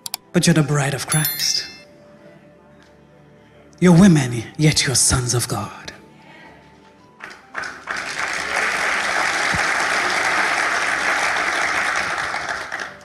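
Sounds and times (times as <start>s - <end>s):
congregation applauding: 7.2s - 13.0s.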